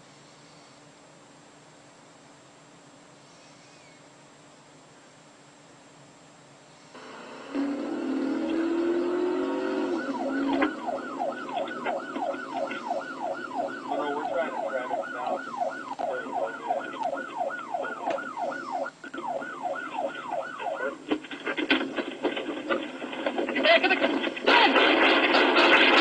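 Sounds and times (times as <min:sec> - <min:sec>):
police siren yelping: 0:07.0 - 0:21.6.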